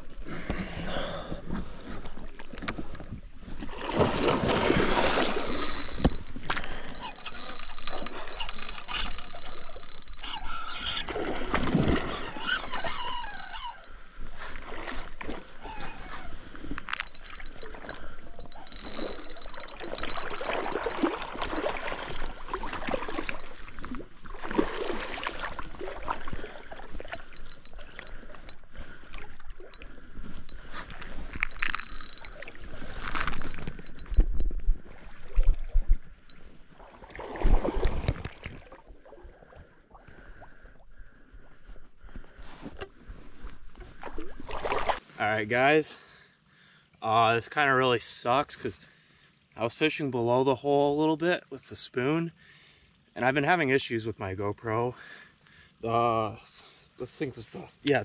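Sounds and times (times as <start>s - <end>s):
river water splashing: 0.0s - 40.1s, 44.0s - 45.0s.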